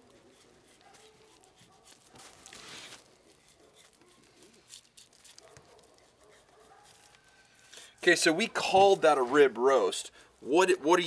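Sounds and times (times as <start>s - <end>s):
knife cutting through fat: 0.0s - 7.9s.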